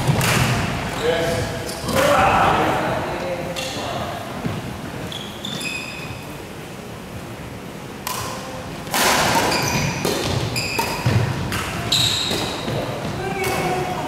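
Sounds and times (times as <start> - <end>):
shoes squeaking on court floor: 3.6 - 6.4, 9.3 - 14.0.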